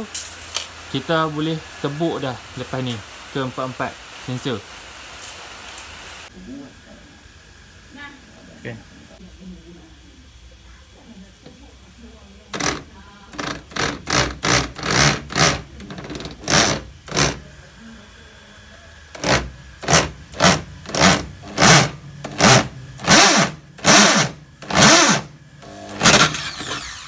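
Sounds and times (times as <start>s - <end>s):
electric drill cutting plastic: 12.5s - 17.4s, 19.1s - 27.0s.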